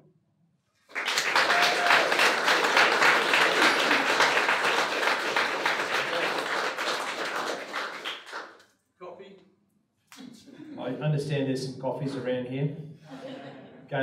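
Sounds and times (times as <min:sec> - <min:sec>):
audience applauding: 0:00.9 - 0:08.6.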